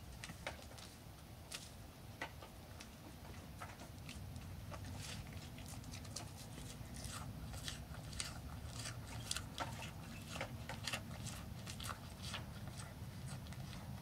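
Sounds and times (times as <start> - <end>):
steady low hum: 0.0 - 14.0
deer chewing crunchily: 3.4 - 14.0.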